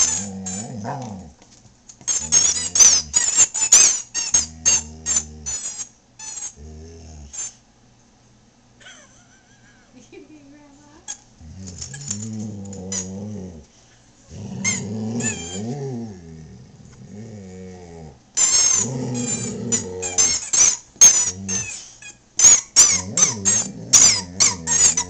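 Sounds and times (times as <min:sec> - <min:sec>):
dog grumbling and growling: 0:00.0 - 0:01.4, 0:02.1 - 0:03.4, 0:04.4 - 0:05.7, 0:06.6 - 0:07.4, 0:11.4 - 0:13.7, 0:14.3 - 0:21.8, 0:22.8 - 0:25.0
squeaky toy squeaking: 0:02.1 - 0:06.6, 0:14.6 - 0:15.7, 0:18.4 - 0:25.0.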